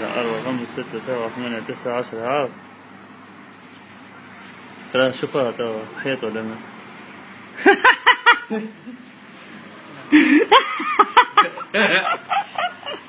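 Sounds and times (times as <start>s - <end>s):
people laughing: 7.6s - 9.1s, 10.0s - 13.0s.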